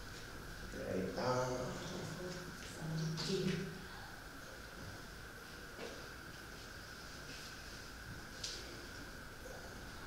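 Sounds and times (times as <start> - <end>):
faint high whine: 0.0 - 10.0.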